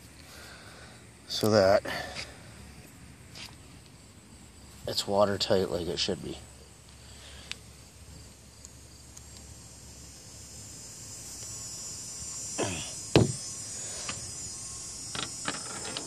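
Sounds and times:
faint insect chorus: 0.0 - 16.0
sharp knocks on plastic hatch: 13.2 - 13.4.

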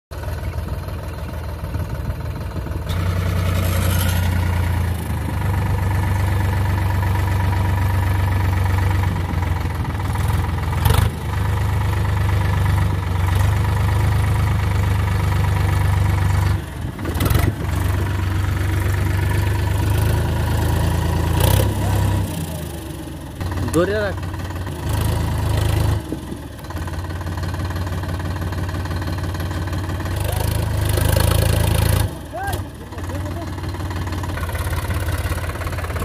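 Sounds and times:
tractor diesel engine under load: 0.1 - 36.0.

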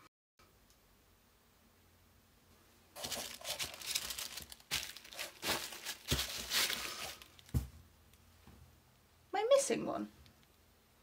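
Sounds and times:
tissue paper crinkling: 3.0 - 7.6.

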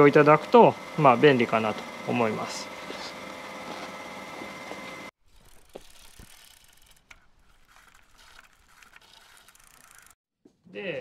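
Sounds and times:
steady high hum: 0.0 - 5.1.

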